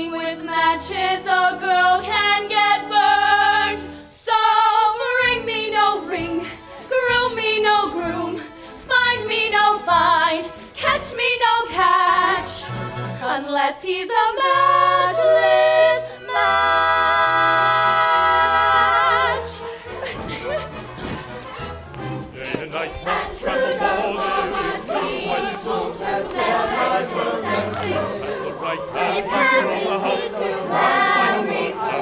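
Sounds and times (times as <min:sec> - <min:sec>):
women singing: 0:00.0 - 0:20.6, 0:22.9 - 0:32.0
instrumental accompaniment: 0:14.6 - 0:32.0.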